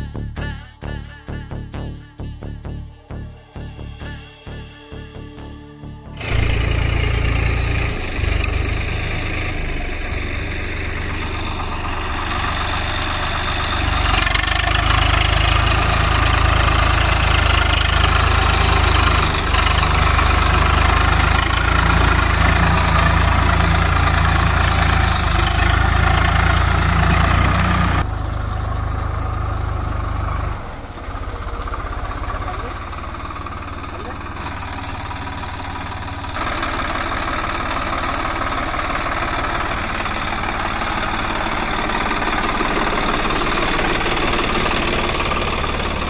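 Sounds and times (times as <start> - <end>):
diesel tractor engines under load: 6.1 - 46.0.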